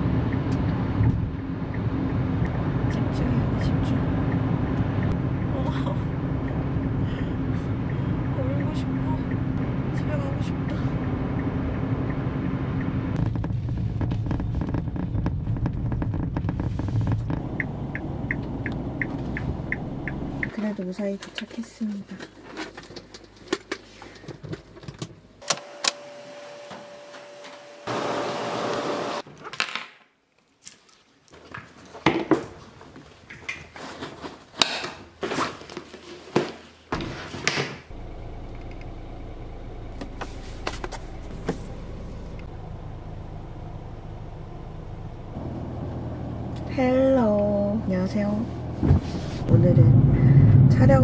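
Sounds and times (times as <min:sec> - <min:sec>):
car cabin low drone: 0:00.0 - 0:20.6, 0:37.9 - 0:51.0.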